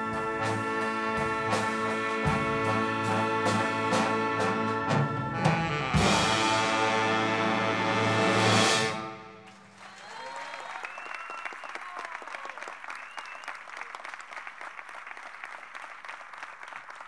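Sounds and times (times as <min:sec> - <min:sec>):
audience applause: 0:09.4 - 0:17.0
shouted cheers: 0:09.7 - 0:14.0.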